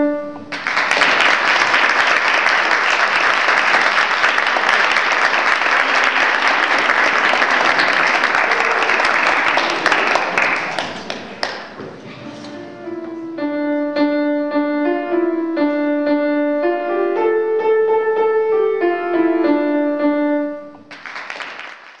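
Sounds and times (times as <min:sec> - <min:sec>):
piano playing simple tune: 0:00.0 - 0:00.7, 0:12.4 - 0:21.0
applause: 0:00.5 - 0:11.8, 0:20.9 - 0:22.0.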